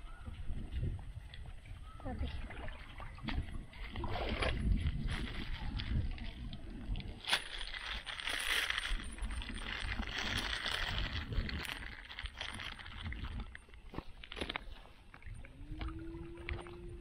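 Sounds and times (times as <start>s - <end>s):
plastic bag crinkling: 7.2s - 14.7s.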